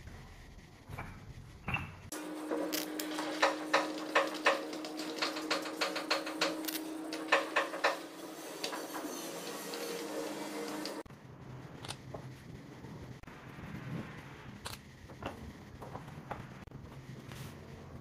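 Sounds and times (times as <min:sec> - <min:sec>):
steady low hum: 0:00.0 - 0:18.0
chair legs clicking and knocking: 0:02.5 - 0:11.0.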